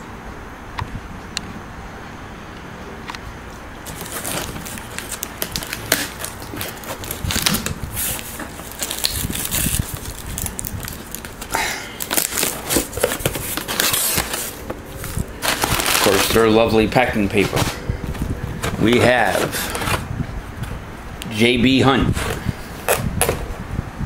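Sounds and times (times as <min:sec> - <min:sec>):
packing paper rustling: 0:03.8 - 0:20.8
cardboard box being opened: 0:03.9 - 0:20.1.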